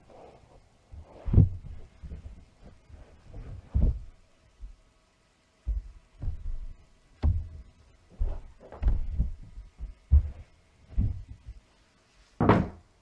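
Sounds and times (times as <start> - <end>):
faint steady hum: 0.0 - 13.0
low thuds: 5.7 - 11.6.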